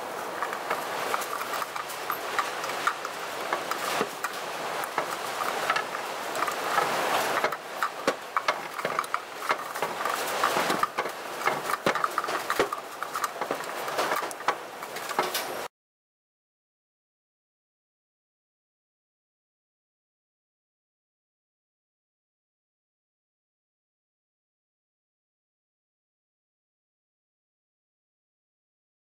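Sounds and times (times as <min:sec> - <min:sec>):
rustling and handling noise: 0:00.0 - 0:15.7.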